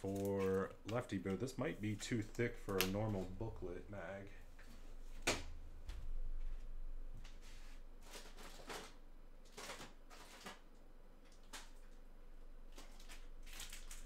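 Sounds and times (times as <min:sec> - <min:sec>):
steady low hum: 0:00.0 - 0:08.3.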